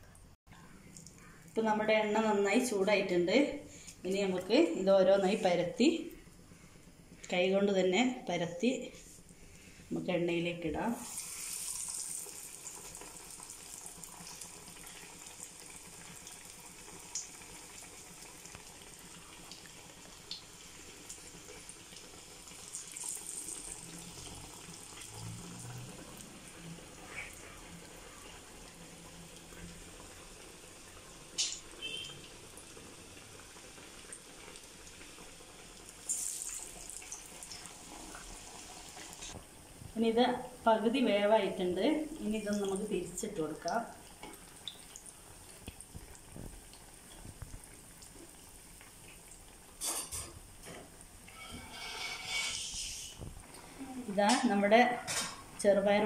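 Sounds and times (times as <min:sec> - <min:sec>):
food deep-frying in oil: 0:10.7 - 0:56.0.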